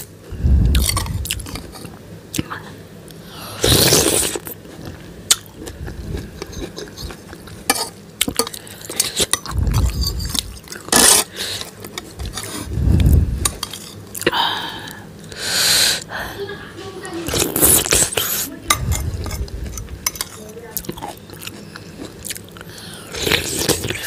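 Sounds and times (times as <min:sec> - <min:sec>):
eating sounds: 0:05.3 - 0:16.1, 0:17.2 - 0:24.0
cutlery clinking on ceramic bowl: 0:20.0 - 0:20.5.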